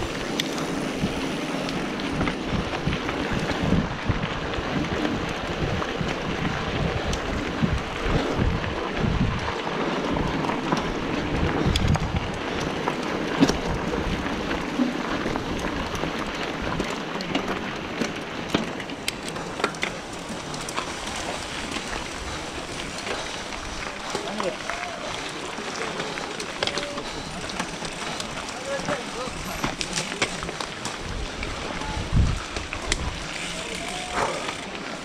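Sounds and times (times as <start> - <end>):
bike clicks and rattles: 0.0 - 35.0
tyres rolling on dirt: 0.0 - 35.0
wind rumbling on microphone: 0.0 - 35.0.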